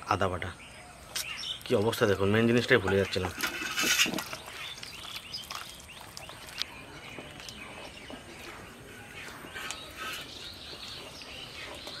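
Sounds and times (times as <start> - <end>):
hands squelching in spice paste: 3.0 - 12.0.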